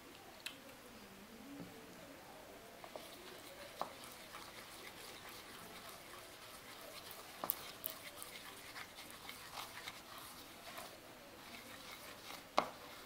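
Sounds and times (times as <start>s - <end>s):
spoon stirring in plastic bowl: 2.8s - 13.0s.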